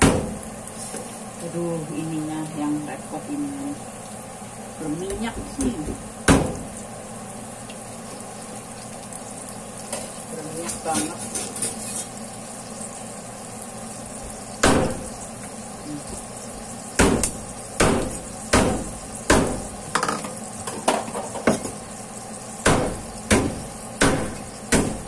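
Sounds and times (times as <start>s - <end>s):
garlic sizzling in hot oil: 0.0s - 25.0s
sharp knocks: 6.3s - 6.7s, 17.0s - 19.6s, 22.6s - 25.0s.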